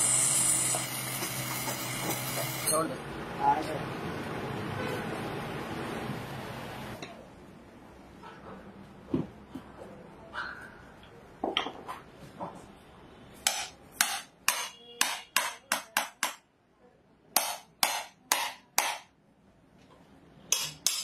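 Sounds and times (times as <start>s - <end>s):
hammer striking steel spike: 13.4s - 16.4s, 17.4s - 19.1s, 20.5s - 21.0s.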